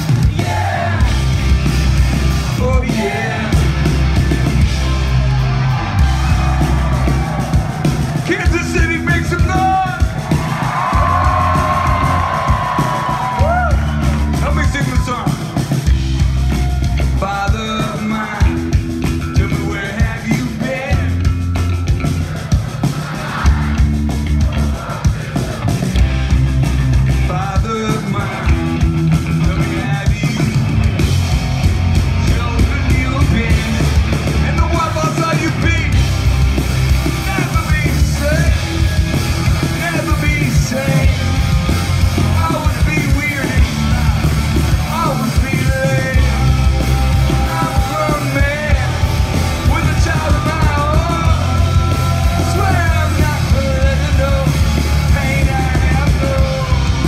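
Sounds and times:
bass guitar: 0.0 - 57.0
driving drum beat: 0.0 - 57.0
electric guitars: 0.0 - 57.0
person singing: 44.8 - 57.0.

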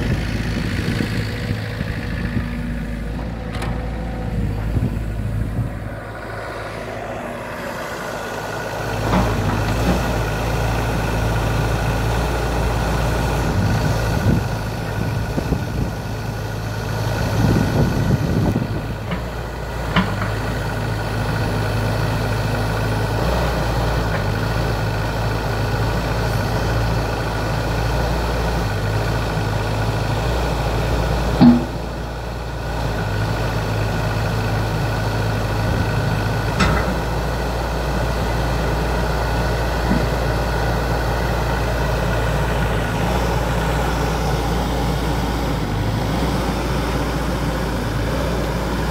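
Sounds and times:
excavator diesel engine running: 0.0 - 48.9
metal clunks: 3.1 - 4.9, 31.4 - 32.0.

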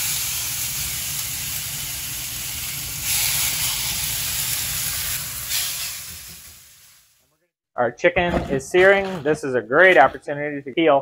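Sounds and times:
chicken sizzling in a skillet: 0.0 - 7.2.

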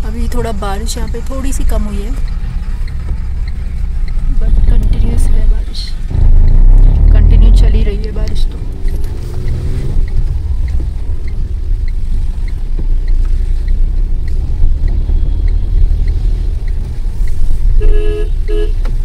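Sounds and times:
car engine and tyres rumbling: 0.0 - 19.0
light ticking: 0.0 - 19.0
vehicle horn: 17.7 - 18.8.

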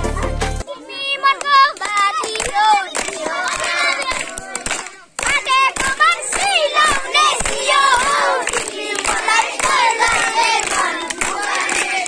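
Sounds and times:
children singing and shouting: 0.0 - 12.0
children clapping: 1.3 - 12.0.

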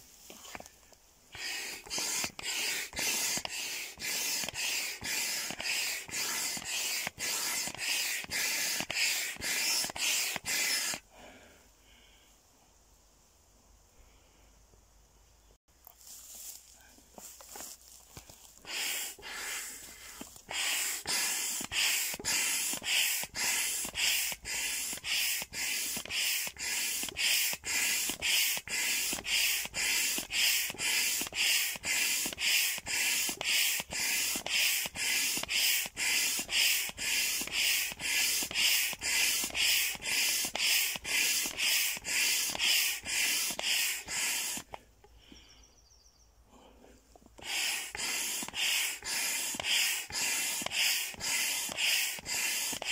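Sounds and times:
hand pump whooshing strokes: 1.3 - 11.1, 18.6 - 44.8, 47.2 - 52.9.

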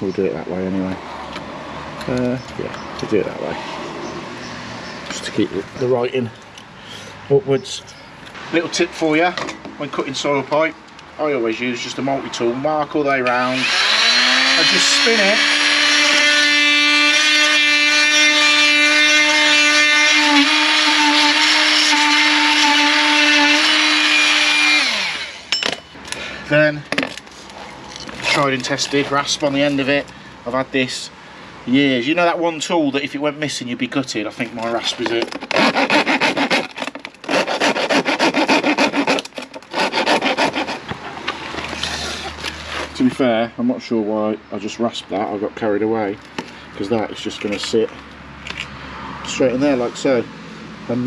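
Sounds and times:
oscillating multi-tool cutting plastic: 13.5 - 25.6, 34.9 - 40.9
rasp filing plastic pipe: 34.6 - 41.1.

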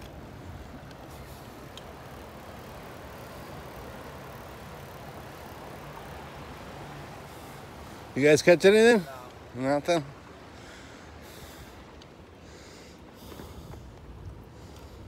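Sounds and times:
faint ticks: 0.0 - 6.2, 11.3 - 15.0
bicycle tyres rolling: 0.0 - 15.0.

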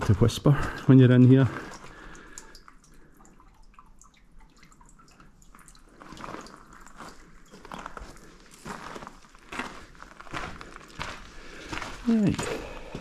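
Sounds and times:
faint water drips: 0.0 - 13.0
footsteps on gravel: 6.1 - 13.0.

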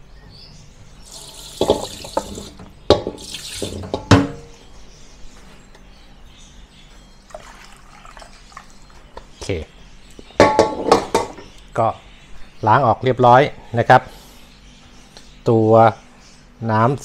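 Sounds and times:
water trickling: 1.1 - 2.6, 3.2 - 4.0, 7.3 - 8.9
water pouring and splashing: 1.1 - 4.0, 7.4 - 8.7
sharp knocks: 1.6 - 4.5, 10.4 - 11.4.

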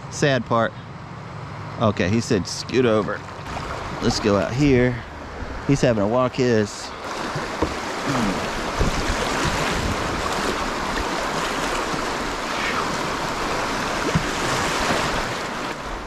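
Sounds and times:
river water rushing: 3.2 - 16.0
wind buffeting microphone: 7.0 - 16.0.

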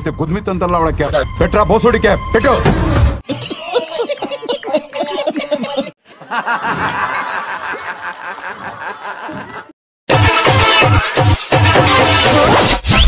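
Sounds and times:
people chuckling: 3.2 - 9.8
loud music: 10.1 - 13.0.

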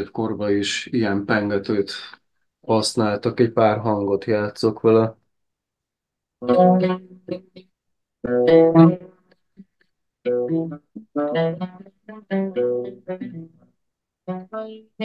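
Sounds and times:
plucked oud phrases: 6.4 - 7.6, 8.3 - 9.2.

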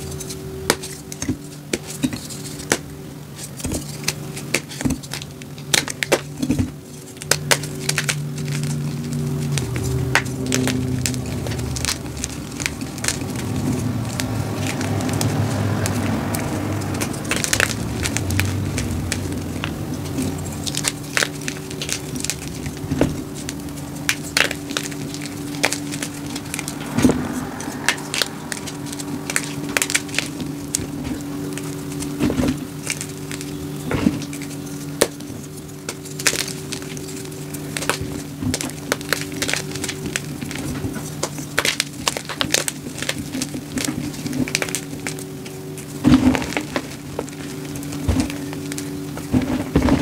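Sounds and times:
chalk blocks crunching and cracking: 0.0 - 50.0
low hum: 0.0 - 50.0.

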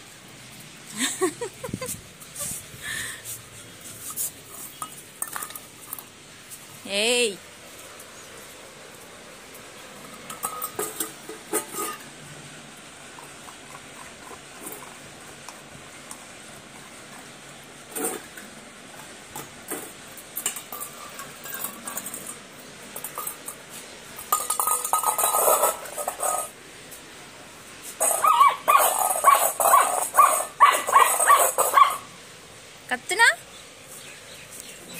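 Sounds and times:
puppy eating from metal bowls: 13.0 - 26.6
metal clinks on tiled floor: 23.0 - 26.5
puppy yipping: 28.1 - 32.1.

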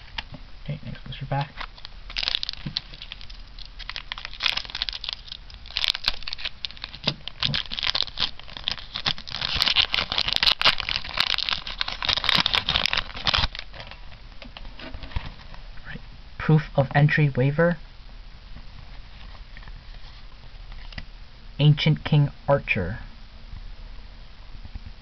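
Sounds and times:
foil wrapper crinkling and tearing: 1.3 - 15.5.

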